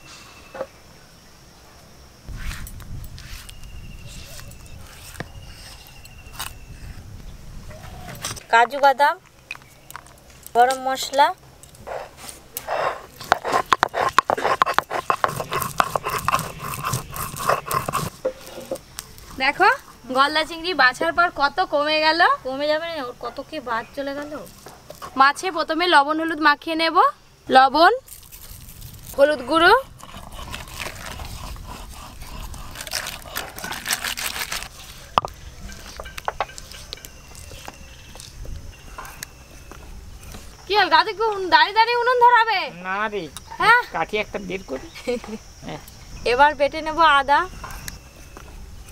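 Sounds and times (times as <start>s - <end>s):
stone grinding on stone: 11.8s - 20.0s, 28.4s - 38.3s.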